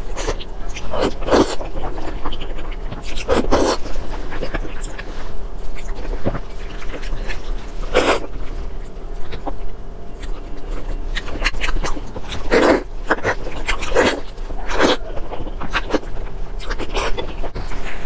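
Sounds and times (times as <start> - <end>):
slurping: 10.3 - 18.0.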